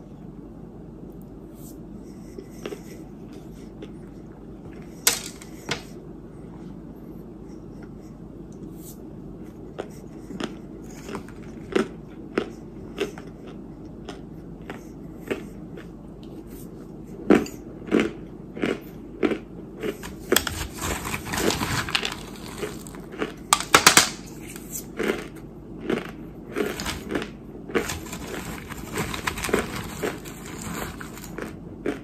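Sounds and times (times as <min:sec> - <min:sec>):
steady low hum: 0:00.0 - 0:32.0
chewing crunches: 0:09.5 - 0:32.0.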